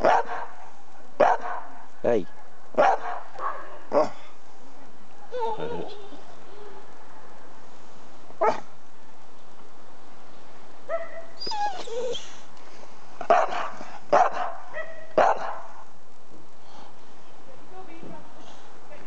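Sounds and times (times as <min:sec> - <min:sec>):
dog barking: 0:00.0 - 0:00.6, 0:01.2 - 0:01.8, 0:02.8 - 0:04.2, 0:08.4 - 0:08.6, 0:10.9 - 0:11.4, 0:13.3 - 0:15.8
dog whining: 0:05.3 - 0:06.8, 0:11.4 - 0:12.4.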